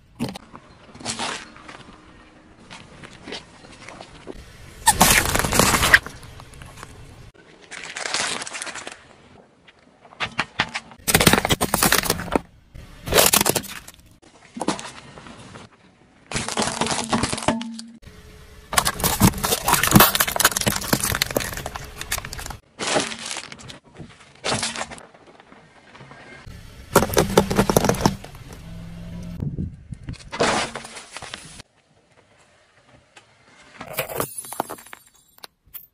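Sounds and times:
car tyre crushing plastic toys: 4.8s - 9.4s, 10.5s - 15.4s, 16.2s - 17.8s, 18.7s - 25.3s, 26.9s - 28.7s.

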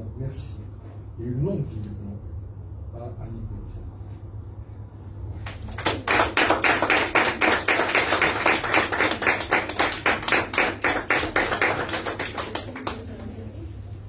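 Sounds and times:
people applauding: 5.4s - 13.5s.

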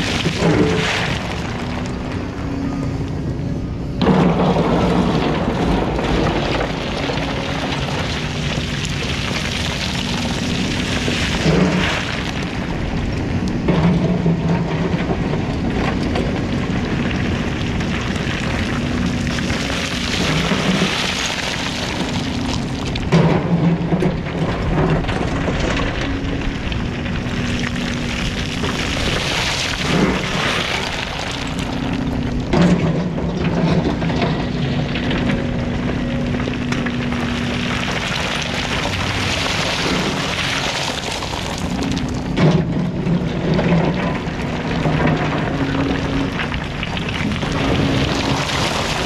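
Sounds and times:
excavator engine and hydraulics humming: 0.0s - 49.0s.

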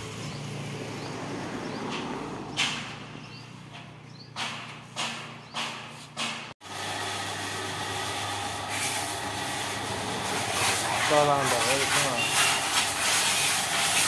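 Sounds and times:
hose water spraying: 4.4s - 14.0s
person speaking: 10.8s - 12.6s.

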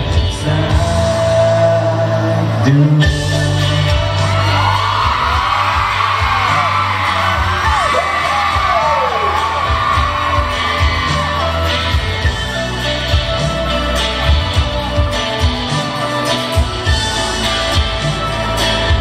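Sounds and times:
man singing into microphone: 0.0s - 5.4s
pop backing track with bass: 0.0s - 19.0s
high voices screaming and whooping: 3.6s - 19.0s.

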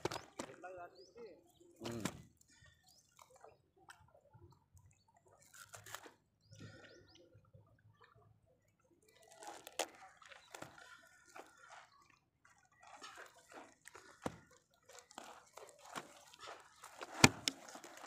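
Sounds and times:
water drips and splashes: 1.6s - 18.0s
wet fishing net handling: 5.2s - 6.3s, 9.1s - 11.8s, 12.5s - 18.0s.

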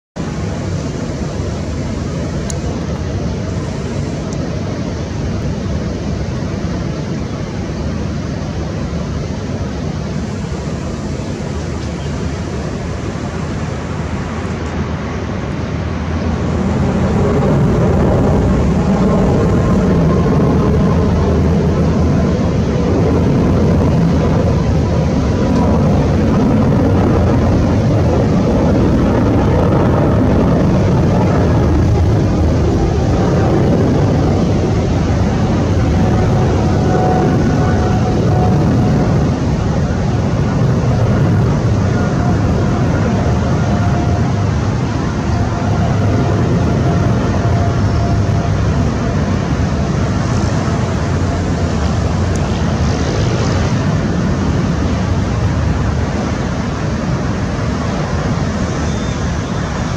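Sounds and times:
jet engines at take-off power: 0.0s - 59.9s.

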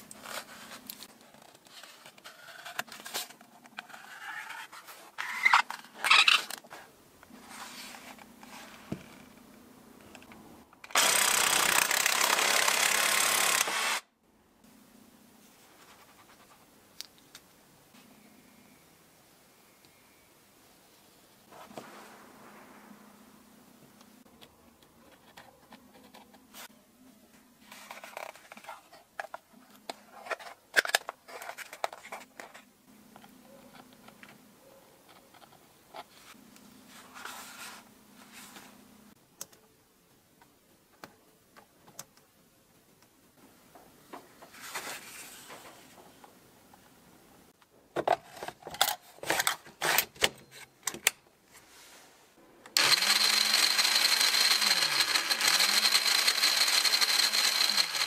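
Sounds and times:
circular saw motor whining: 52.8s - 58.0s.

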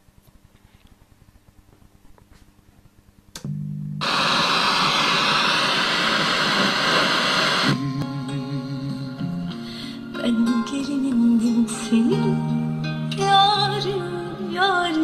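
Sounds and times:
low hum: 0.0s - 9.5s
radio static hiss: 4.0s - 8.3s
music from radio: 4.0s - 15.0s.

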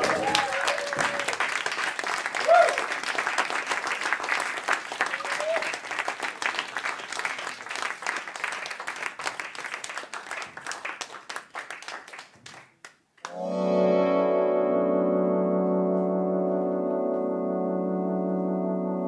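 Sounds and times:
audience applause: 0.0s - 13.4s
sustained synthesizer chord: 13.3s - 19.0s.

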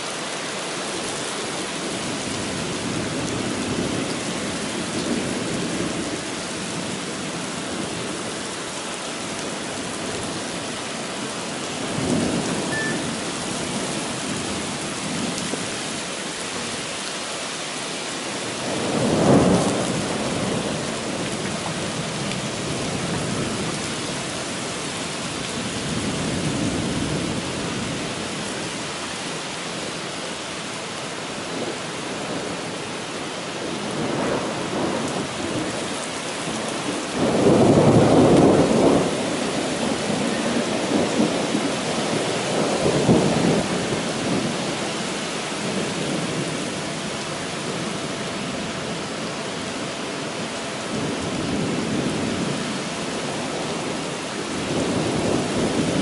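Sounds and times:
heavy rain pouring: 0.0s - 56.0s
thunder rumbling: 18.6s - 24.1s, 33.9s - 44.7s.

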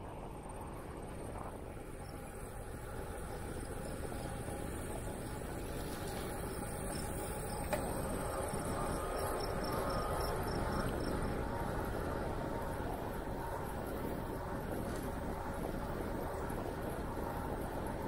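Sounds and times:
crickets chirping: 3.0s - 11.4s
wind noise on microphone: 4.2s - 18.0s.

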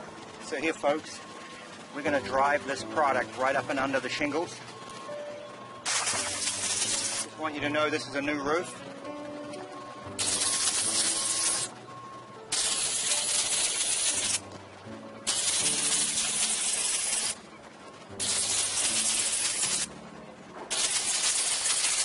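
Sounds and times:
spray wand hissing: 5.9s - 7.3s, 10.2s - 11.7s, 12.5s - 14.4s, 15.3s - 17.4s, 18.2s - 19.9s, 20.7s - 22.0s.

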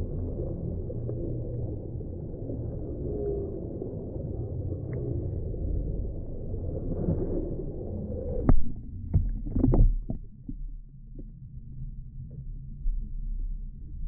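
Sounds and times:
underwater rumbling wash: 0.0s - 14.0s
sharp underwater clicks and knocks: 8.4s - 11.3s.

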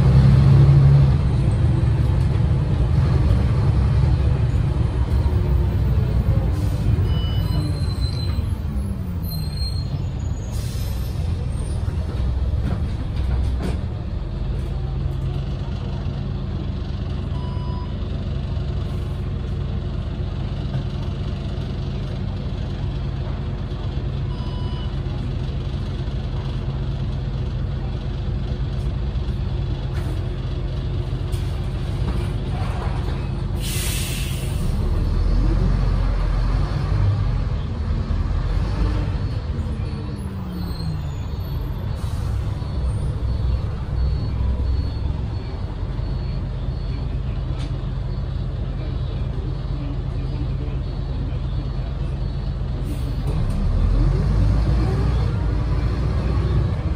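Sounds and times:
bus diesel engine: 0.0s - 56.9s
compressed air hiss: 33.6s - 34.6s.

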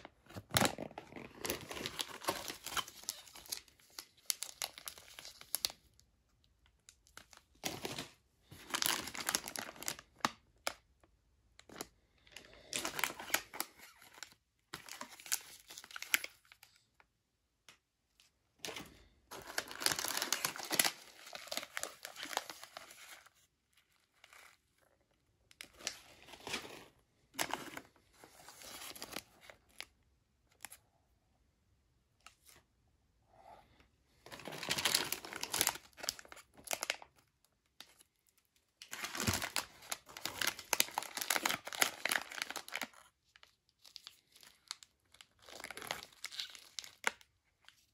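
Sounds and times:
plastic wrappers rustling: 0.3s - 5.8s, 7.1s - 10.2s, 18.6s - 24.6s, 25.6s - 29.5s, 34.3s - 37.1s, 38.8s - 47.2s.

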